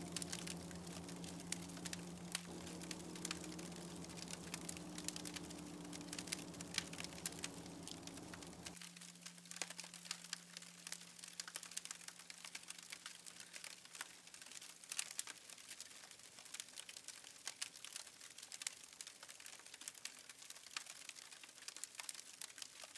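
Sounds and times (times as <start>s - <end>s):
wood fire crackling: 0.0s - 8.9s, 10.9s - 12.1s, 16.5s - 22.6s.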